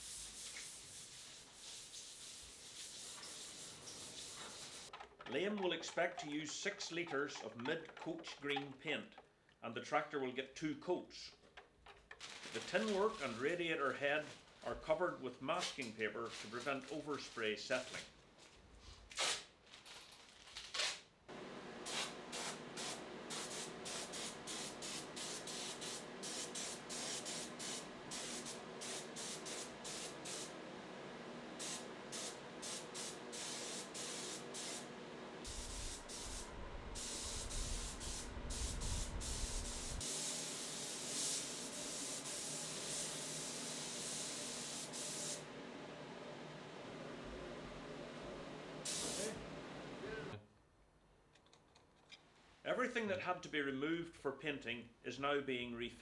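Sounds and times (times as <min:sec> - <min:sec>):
paint spray gun hissing: 0:00.0 - 0:04.9, 0:21.9 - 0:30.6, 0:31.6 - 0:45.4, 0:48.8 - 0:49.4.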